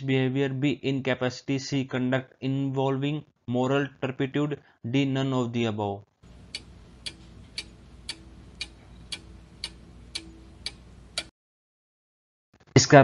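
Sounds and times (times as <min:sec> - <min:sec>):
clock ticking: 0:06.2 - 0:11.3
faint hum: 0:06.2 - 0:11.3.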